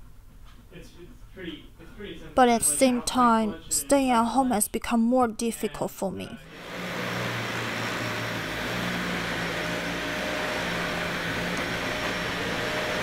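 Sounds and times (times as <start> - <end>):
vacuum cleaner running on carpet: 6.5 - 13.0.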